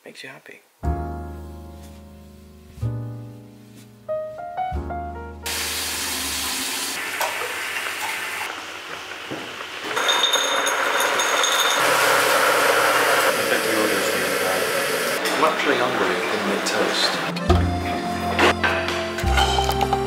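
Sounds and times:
water running at a sink: 0:05.5 - 0:15.2
crockery clinking: 0:10.0 - 0:12.0, 0:18.6 - 0:20.0.

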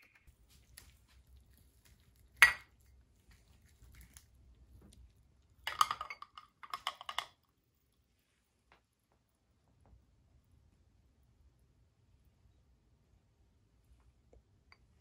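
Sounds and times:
glass mug clinking: 0:02.4 - 0:02.7, 0:05.7 - 0:07.4.

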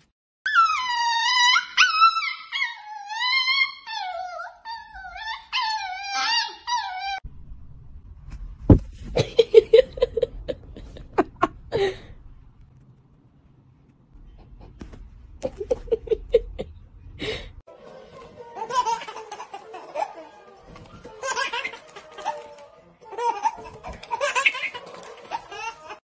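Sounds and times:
baby laughing: 0:15.4 - 0:16.7, 0:18.6 - 0:26.0
background music: 0:17.2 - 0:26.0.

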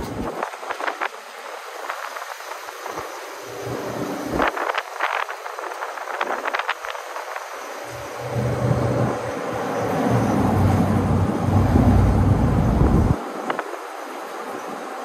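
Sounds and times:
road noise hiss: 0:00.0 - 0:15.0
vehicle engine rumble: 0:07.8 - 0:13.2.

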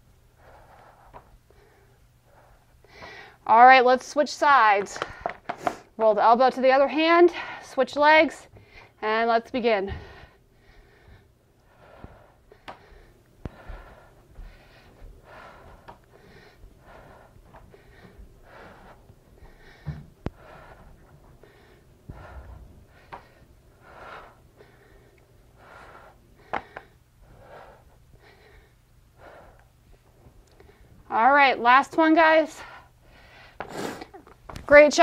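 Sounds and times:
woman breathing hard: 0:00.0 - 0:03.4, 0:08.4 - 0:09.0, 0:09.8 - 0:31.1, 0:32.4 - 0:34.3.

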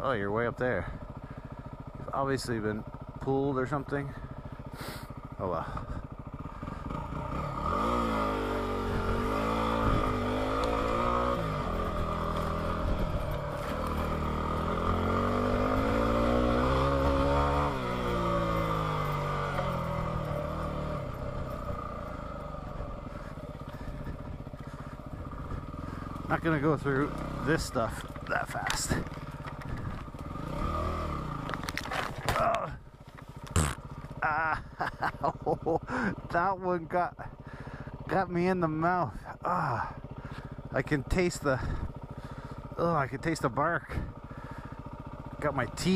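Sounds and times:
motorcycle engine revving: 0:00.0 - 0:45.9
branches scraping along bike: 0:06.8 - 0:34.1
branches snapping and slapping: 0:31.4 - 0:32.6.

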